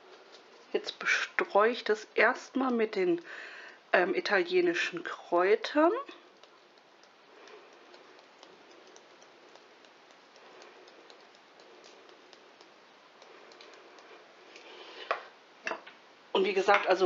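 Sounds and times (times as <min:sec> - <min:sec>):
plastic spice shaker ticking: 0:06.0 - 0:14.7.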